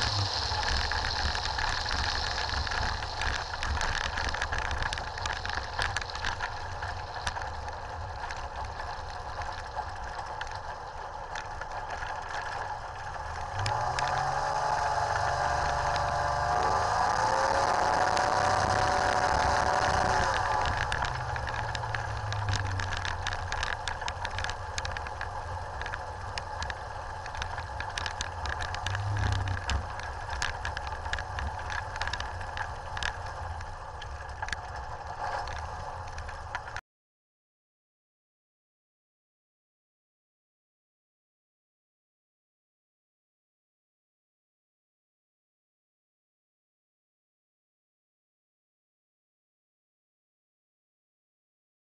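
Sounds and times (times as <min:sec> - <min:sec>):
two-stroke aircraft engine: 0:00.0 - 0:36.8.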